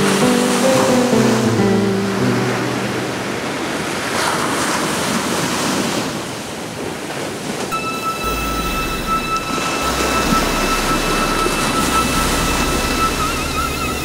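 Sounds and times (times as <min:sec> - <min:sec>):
held music notes: 0:00.0 - 0:03.9, 0:07.7 - 0:14.0
steady rushing noise: 0:07.8 - 0:14.0.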